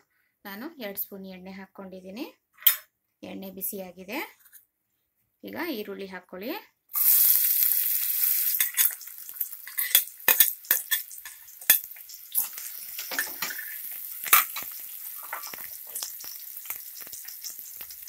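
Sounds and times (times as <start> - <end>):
onions sizzling in hot oil: 6.9 - 18.0
ladle scraping and clinking on pot: 9.7 - 16.1.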